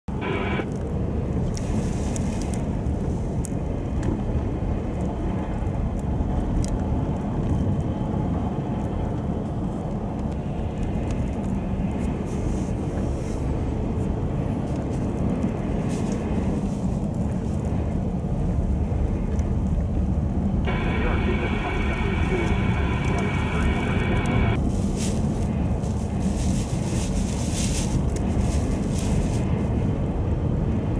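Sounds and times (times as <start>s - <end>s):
vehicle engine rumble: 0.1s - 30.9s
tyre noise on snow: 20.7s - 29.9s.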